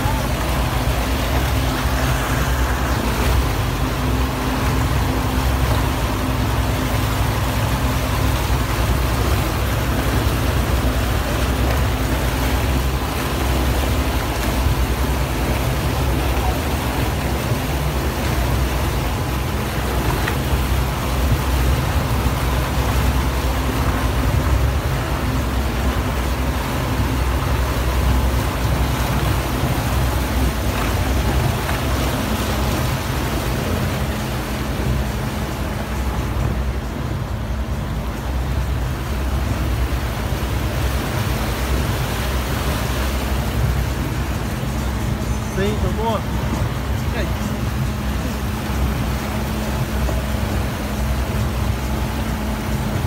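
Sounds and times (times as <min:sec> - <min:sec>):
outboard motor running: 0:00.0 - 0:53.0
water rushing: 0:00.0 - 0:53.0.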